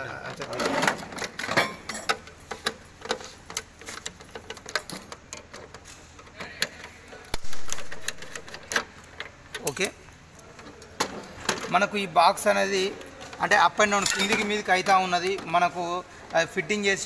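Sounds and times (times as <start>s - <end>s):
plastic and metal parts clicking: 1.2s - 11.8s.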